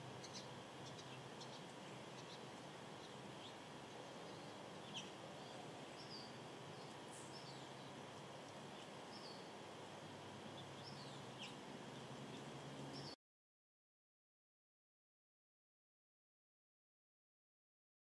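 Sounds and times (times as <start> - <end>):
steady background hiss: 0.0 - 13.2.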